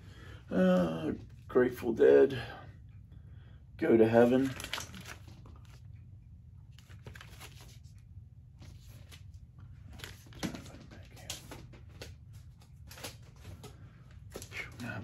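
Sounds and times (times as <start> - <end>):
steady low hum: 0.0 - 15.0
record sleeves rustling: 6.7 - 15.0.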